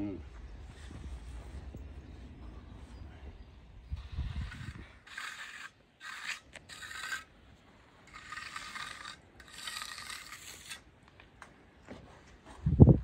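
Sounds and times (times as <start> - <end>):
hand tool scraping concrete: 4.0 - 7.4, 8.0 - 10.9.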